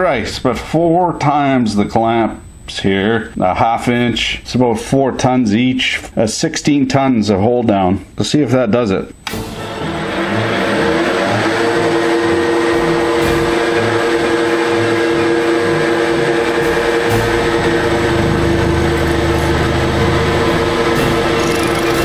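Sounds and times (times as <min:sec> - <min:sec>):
milling machine two-tone whine: 0:09.3 - 0:22.0
deep machine hum: 0:09.4 - 0:22.0.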